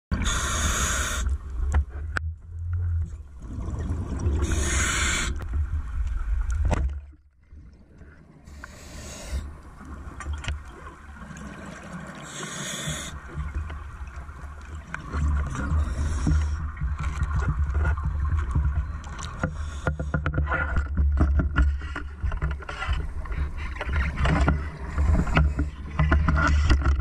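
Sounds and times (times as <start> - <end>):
exhaled bubbles underwater: 3.1 - 6.0, 9.7 - 19.1.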